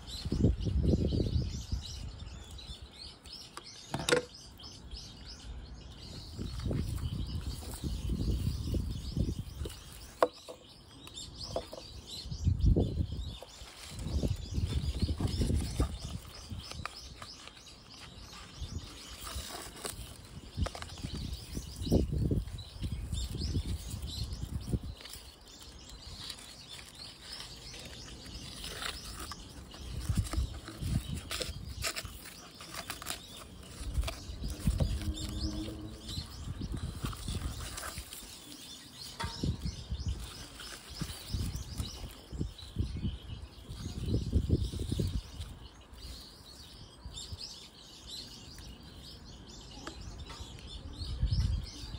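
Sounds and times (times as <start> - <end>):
birds chirping: 0.0 - 51.9
plastic pot bumps and scrapes: 3.6 - 4.4, 11.4 - 12.2, 13.2 - 22.6, 26.2 - 42.9.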